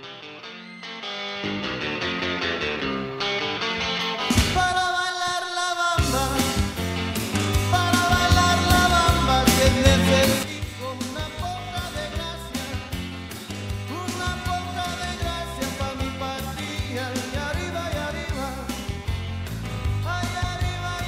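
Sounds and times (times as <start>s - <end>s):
band with bass and beat: 1.4s - 4.9s, 6.0s - 21.0s
person singing: 4.3s - 13.1s, 13.9s - 18.9s, 20.0s - 21.0s.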